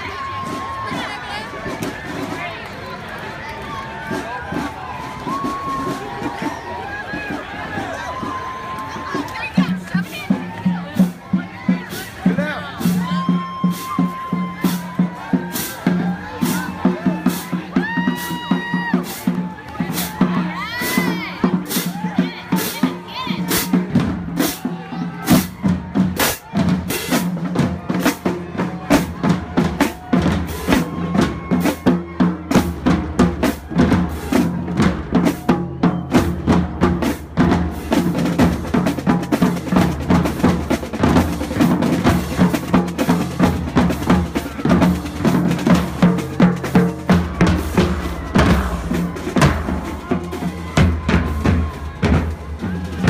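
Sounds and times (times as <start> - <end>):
bass and snare drums: 4.0 - 53.0.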